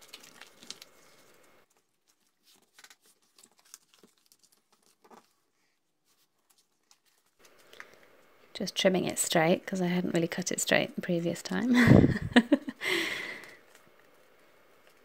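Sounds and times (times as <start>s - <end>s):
fabric and paper rustling: 0.0s - 8.1s.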